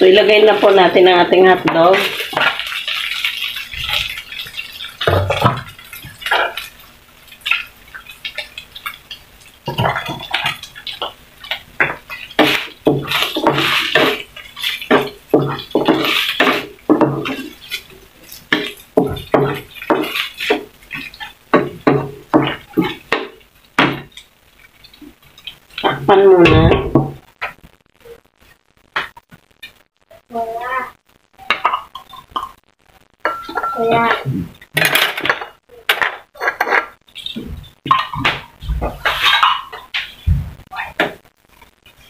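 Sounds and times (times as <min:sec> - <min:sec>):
spatula scraping a frying pan: 0:09.8 - 0:23.2, 0:36.4 - 0:38.2, 0:38.8 - 0:40.3.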